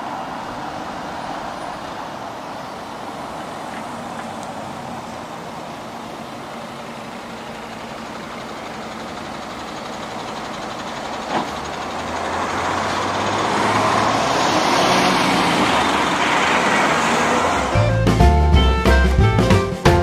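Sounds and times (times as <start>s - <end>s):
lorry driving past: 10.4s - 18.6s.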